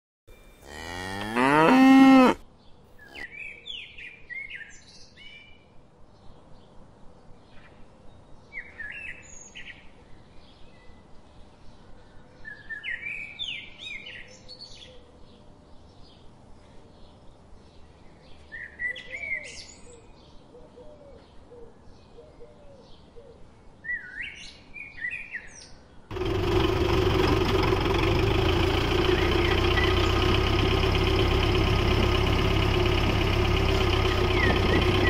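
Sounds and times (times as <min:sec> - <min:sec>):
birds chirping: 0:00.4 - 0:04.6, 0:27.4 - 0:35.0
cow mooing: 0:00.6 - 0:02.4.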